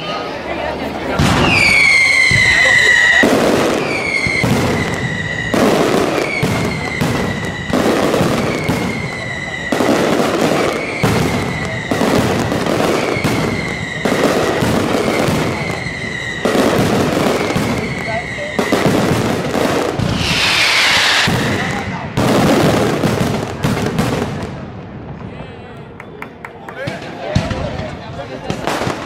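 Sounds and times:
fireworks bangs: 1.0 - 25.3, 26.8 - 29.0
high firework whistles: 1.2 - 22.9.

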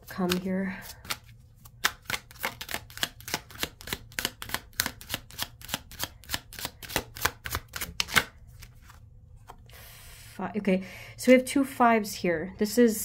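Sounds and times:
cards being shuffled: 0.0 - 9.6.

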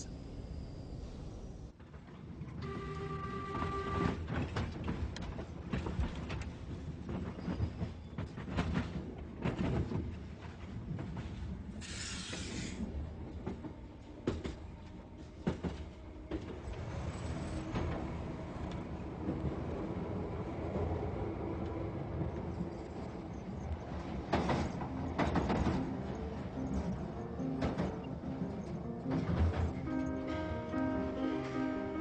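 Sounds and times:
underground train rumbling: 0.0 - 32.0
rail clatter: 3.6 - 20.2, 21.6 - 32.0
short hiss: 11.8 - 12.8.

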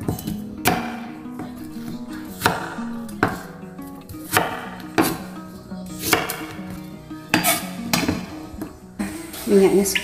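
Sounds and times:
knife chopping on wooden board: 0.0 - 1.5, 2.4 - 3.5, 4.2 - 5.3, 6.0 - 6.6, 7.3 - 8.3
guitar music: 0.0 - 10.0.

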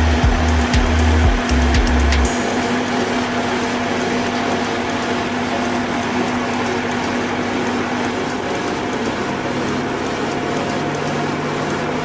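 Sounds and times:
machine engine droning: 0.0 - 12.0.

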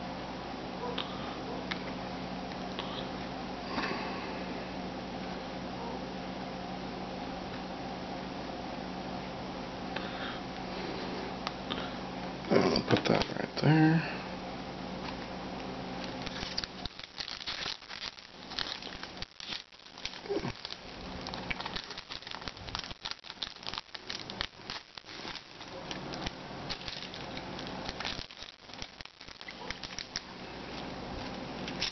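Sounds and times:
foil wrappers crinkling: 16.0 - 31.9
wrapper pulled open: 16.0 - 31.9.

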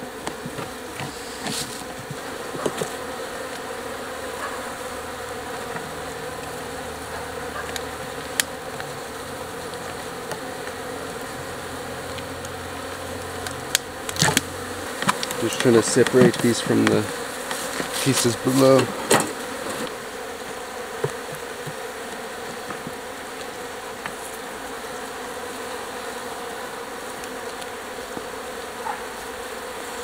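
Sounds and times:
bees buzzing: 0.0 - 30.0.

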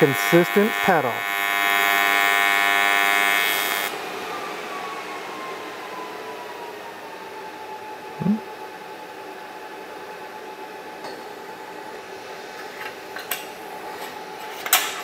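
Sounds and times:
welding arc buzzing: 0.0 - 4.0
faint whine falling in pitch: 8.0 - 8.6.

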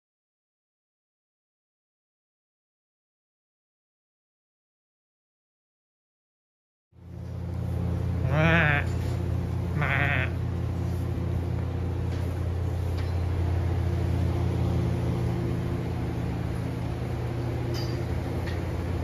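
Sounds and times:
steady low hum: 7.0 - 19.0
goat bleating: 8.2 - 10.5.

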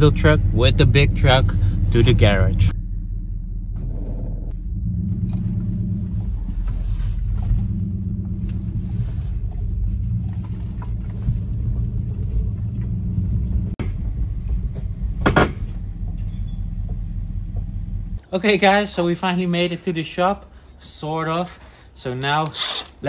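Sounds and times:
low engine rumble: 0.0 - 20.8
tyres through puddles on gravel: 5.2 - 13.8.

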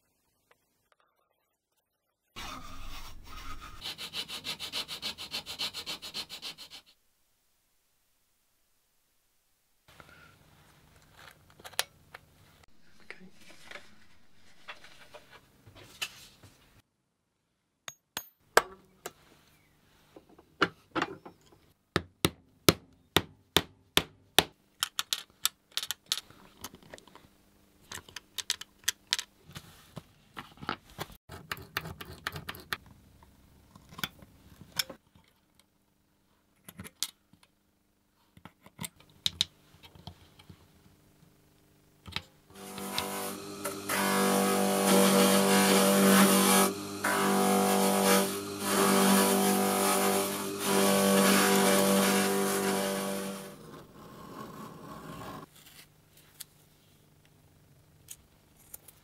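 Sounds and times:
parts rubbing and scraping: 2.4 - 4.2, 12.8 - 16.4.

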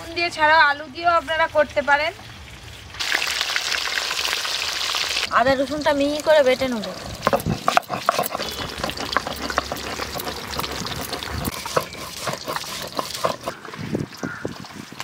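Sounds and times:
stone scraping on stone: 7.2 - 13.8.

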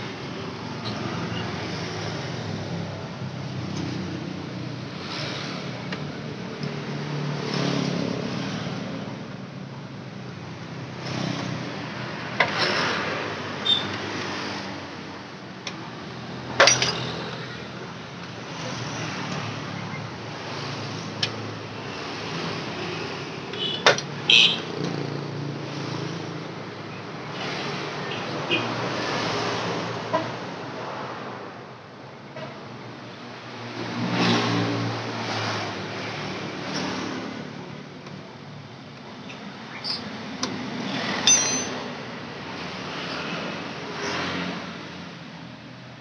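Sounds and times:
traffic hum: 0.0 - 46.0
hand tools clinking on bolts: 16.6 - 17.4, 41.1 - 41.9.

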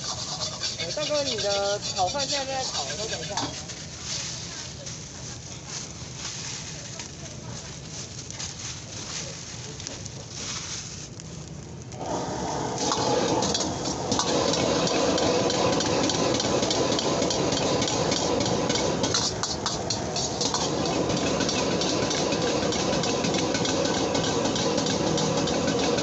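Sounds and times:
metal ladle scraping a wok: 0.0 - 4.5, 12.8 - 26.0
gas burner roaring: 0.0 - 26.0.

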